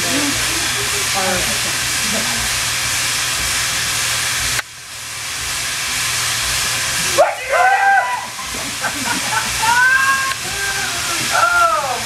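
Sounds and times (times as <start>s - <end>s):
steam locomotive hissing steam: 0.0s - 12.0s.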